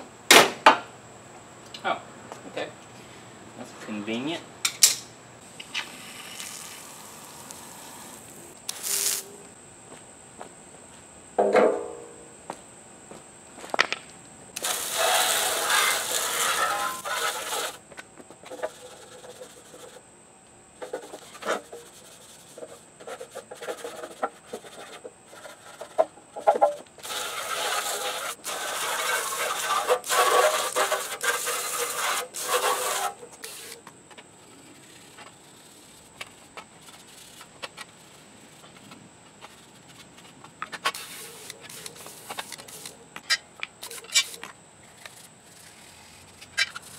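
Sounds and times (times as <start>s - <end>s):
brush scrubbing metal bar: 14.6s - 17.8s, 20.8s - 33.8s.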